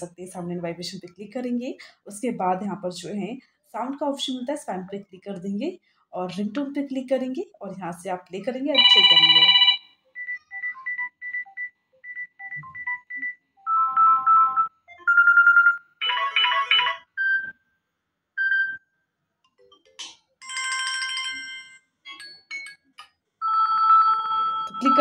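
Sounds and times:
phone ringtones through loudspeaker: 8.7 - 17.5, 23.4 - 25.0.

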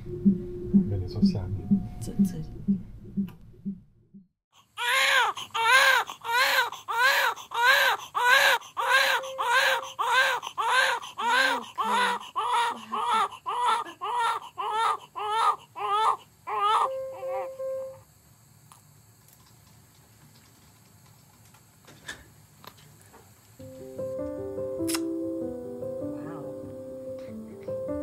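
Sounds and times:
newborn baby crying: 4.7 - 17.6.

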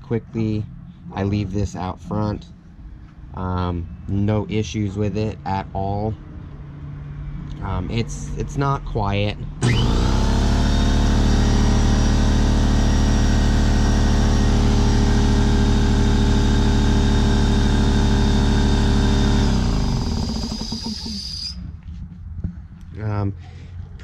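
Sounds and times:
air compressor running: 9.6 - 21.6
high whine: 9.6 - 23.0.

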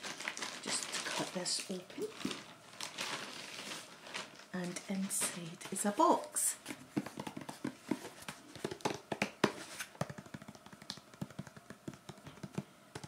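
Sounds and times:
fingernails tapping on cardboard: 7.0 - 13.0.

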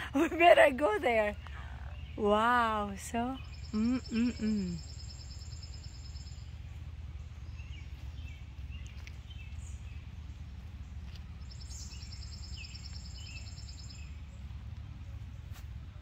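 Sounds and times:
steady low rumble: 0.0 - 16.0
bird chirps: 2.9 - 15.6.

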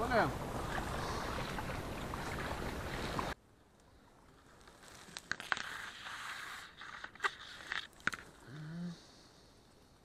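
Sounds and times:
reeds rustling and snapping: 4.4 - 8.4.

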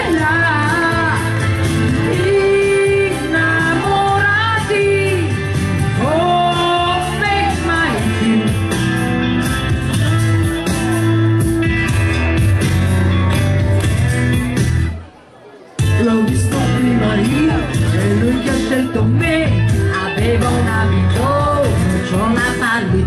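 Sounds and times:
woman singing: 0.0 - 8.7, 15.9 - 23.0
pop-rock band playing: 0.0 - 15.0, 15.8 - 23.0.

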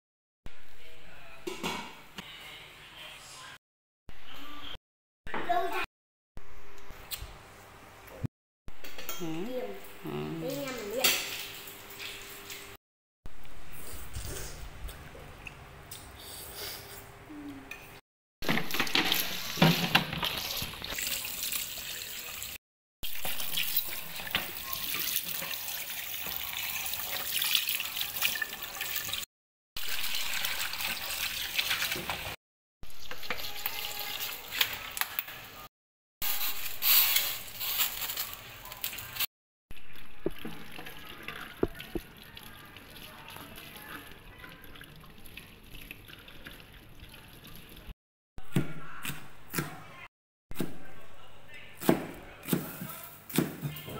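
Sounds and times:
tap water running into steel sink: 23.2 - 29.2.

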